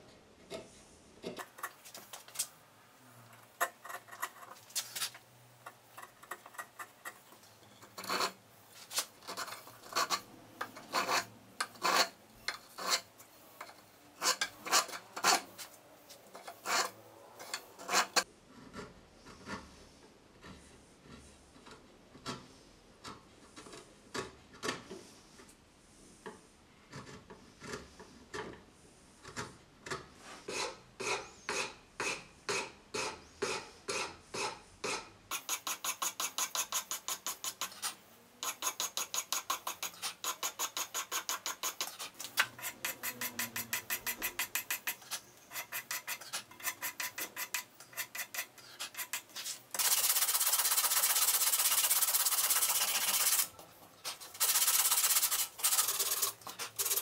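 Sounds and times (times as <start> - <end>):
sandpaper scraping wood: 35.3 - 57.0.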